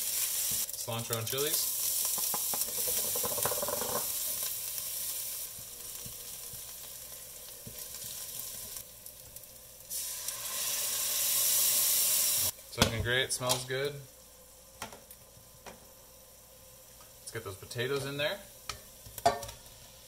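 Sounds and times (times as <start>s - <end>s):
herbs sizzling in hot oil: 0.0s - 20.0s.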